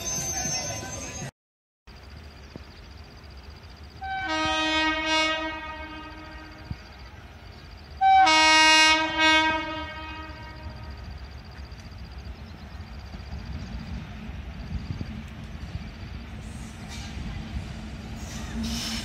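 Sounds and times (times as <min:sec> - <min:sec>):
locomotive air horn blasts: 0:04.0 - 0:06.6, 0:08.0 - 0:10.9.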